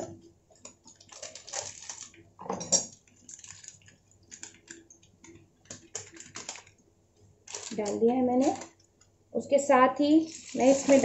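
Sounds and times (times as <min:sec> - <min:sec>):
foil packet crinkling: 0:00.8 - 0:02.3, 0:02.9 - 0:04.9, 0:05.6 - 0:06.8, 0:07.4 - 0:08.8, 0:10.2 - 0:11.0
food frying in hot oil: 0:10.2 - 0:11.0.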